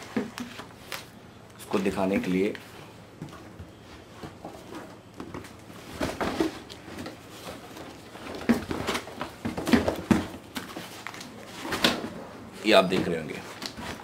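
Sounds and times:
rustling of packing material: 0.0 - 14.0.

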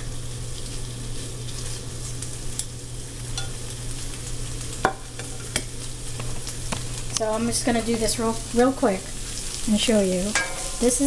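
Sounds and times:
chicken sizzling in a frying pan: 0.0 - 11.0.

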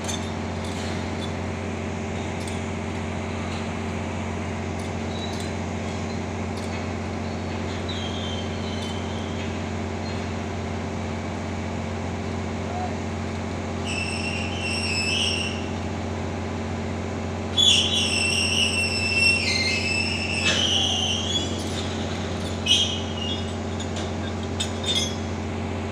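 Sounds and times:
machinery hum: 0.0 - 25.9
high squeal: 7.2 - 10.2, 13.8 - 15.7, 17.6 - 25.3.

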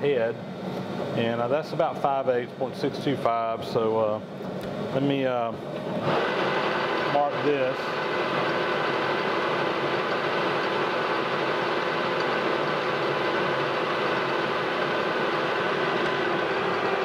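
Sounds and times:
metal lathe running: 5.6 - 17.0.

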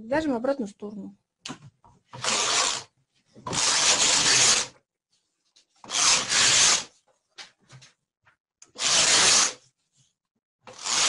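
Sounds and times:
knitting machine carriage rasping: 2.1 - 4.8, 5.8 - 6.9, 8.6 - 9.6, 10.7 - 11.0.

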